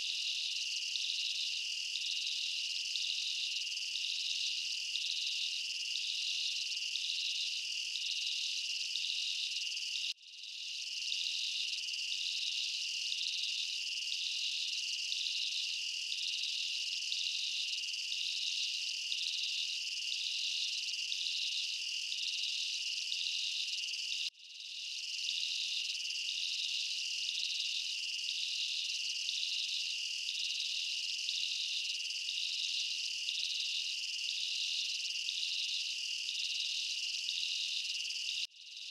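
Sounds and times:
crickets chirping: 0:00.0 - 0:38.9.

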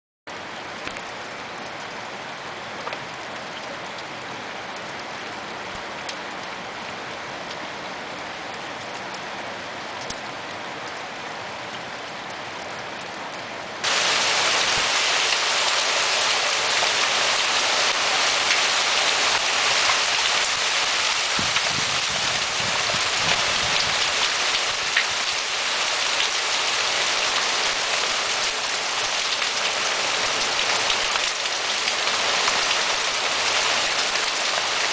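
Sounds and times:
heavy rain and hail falling: 0:13.8 - 0:34.9.

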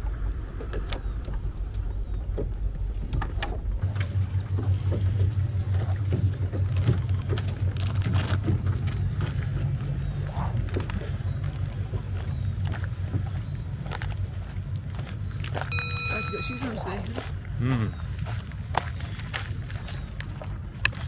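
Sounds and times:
outboard motor running: 0:00.0 - 0:21.0.

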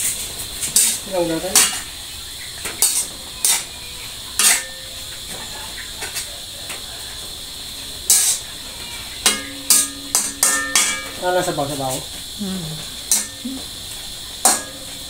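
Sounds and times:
spatula scraping a steel wok: 0:00.0 - 0:01.9, 0:02.7 - 0:03.7, 0:08.1 - 0:11.2
sizzling hiss from pan: 0:00.0 - 0:15.0.

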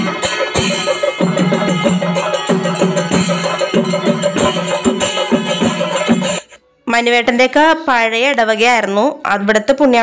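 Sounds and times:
chenda drums beating fast rhythm: 0:00.0 - 0:06.6
ringing tones: 0:00.0 - 0:06.6.

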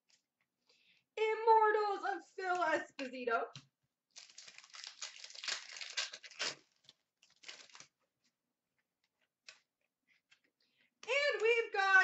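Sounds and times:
trading cards crinkling and rustling: 0:02.6 - 0:12.0.

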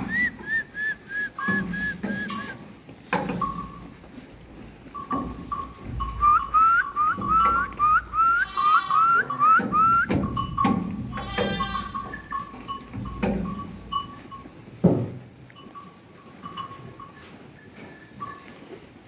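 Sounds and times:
short rising whistles: 0:00.1 - 0:02.6
sheep bleating: 0:06.5 - 0:10.0, 0:11.1 - 0:12.2.

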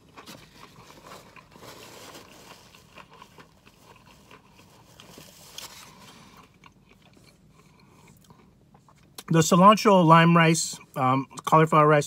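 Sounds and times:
person biting and chewing: 0:00.0 - 0:09.3
paper wrapper crinkling: 0:00.1 - 0:06.4.

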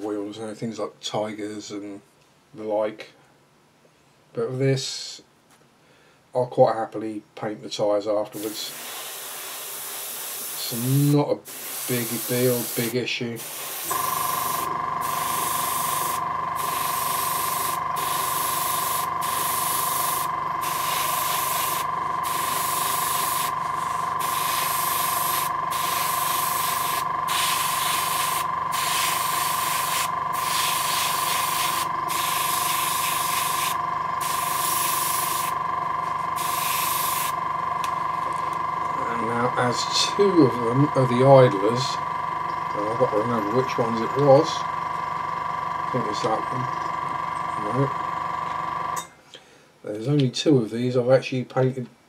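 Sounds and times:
airbrush hissing: 0:08.4 - 0:38.4
air compressor humming: 0:08.4 - 0:49.1.

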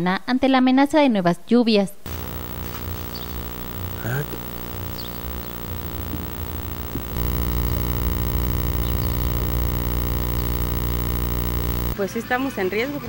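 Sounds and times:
electrical buzz with hiss: 0:02.1 - 0:12.0.

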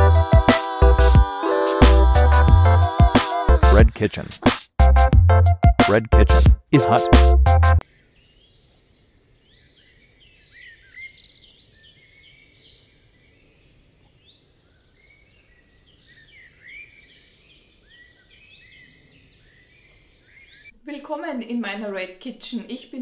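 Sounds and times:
small birds chirping: 0:07.8 - 0:20.8.

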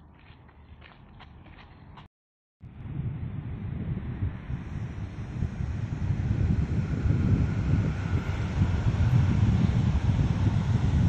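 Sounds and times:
footsteps on gravel: 0:00.0 - 0:02.1
wind buffeting microphone: 0:02.6 - 0:11.0.

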